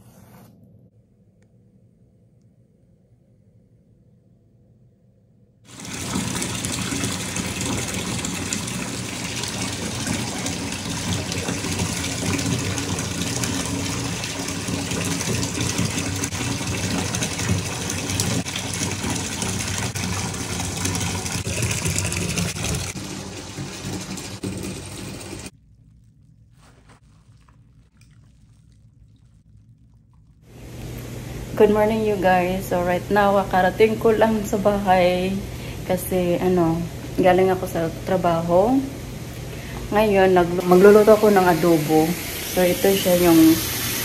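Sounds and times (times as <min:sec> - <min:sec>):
faucet water pouring into tub: 0:05.7 - 0:32.2, 0:40.6 - 0:44.0.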